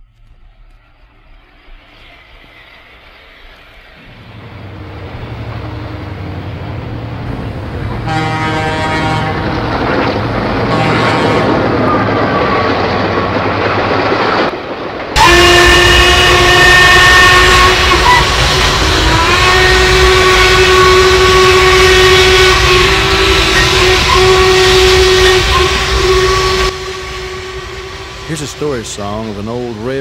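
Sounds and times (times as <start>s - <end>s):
steam locomotive running: 0.0s - 30.0s
steam whistle blasts: 8.0s - 9.4s, 15.2s - 29.2s.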